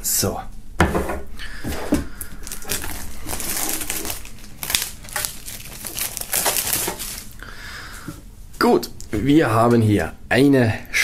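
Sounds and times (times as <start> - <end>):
plastic shrink-wrap crinkling: 2.2 - 7.4.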